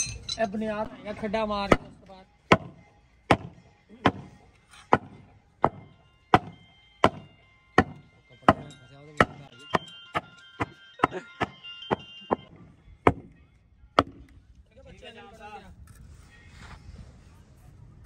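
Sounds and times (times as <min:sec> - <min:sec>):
hand tool striking: 0:02.5 - 0:13.3.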